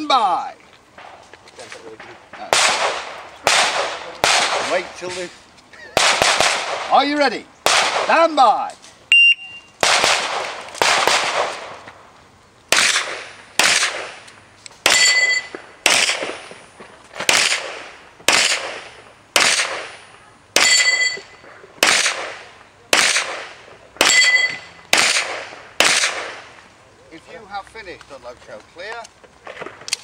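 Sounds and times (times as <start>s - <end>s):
pistol shots echoing: 2.0s - 5.0s, 6.0s - 8.4s, 9.8s - 11.8s, 12.7s - 16.6s, 17.2s - 26.6s
short ringing tone: 9.1s - 9.7s, 15.0s - 15.5s, 20.6s - 21.4s, 24.1s - 24.8s.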